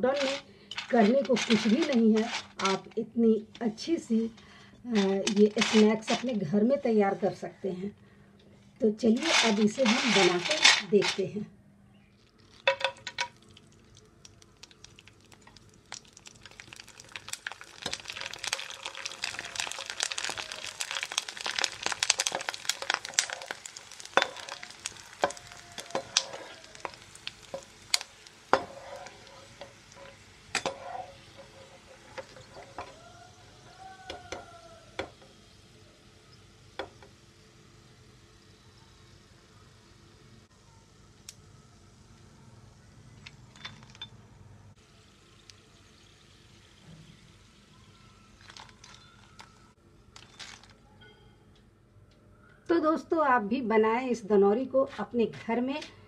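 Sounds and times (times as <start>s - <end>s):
crackers sizzling in hot oil: 0.0s - 3.0s, 9.0s - 11.2s, 12.2s - 40.3s, 44.8s - 50.7s.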